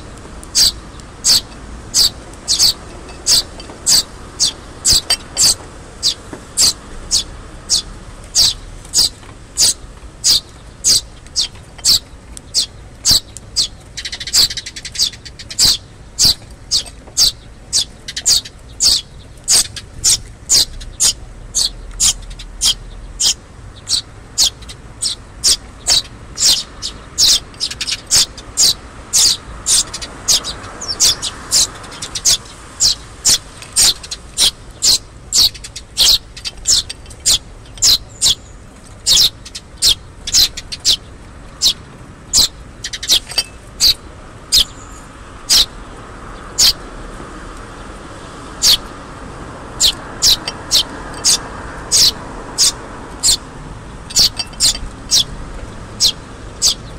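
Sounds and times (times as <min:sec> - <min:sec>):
fledglings chirping: 0:00.0 - 0:45.8, 0:46.5 - 0:46.8, 0:48.6 - 0:49.0, 0:49.7 - 0:56.9.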